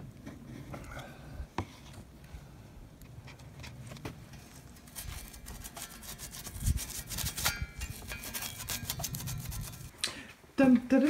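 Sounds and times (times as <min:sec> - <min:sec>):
hand scrubbing steel frame: 0:04.8 - 0:09.9.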